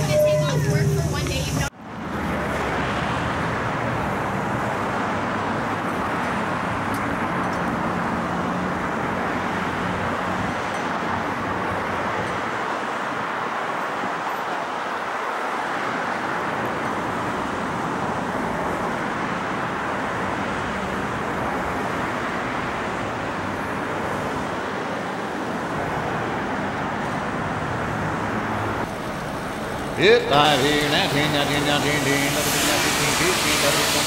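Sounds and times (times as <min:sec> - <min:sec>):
steady noise: 0:28.8 - 0:34.0.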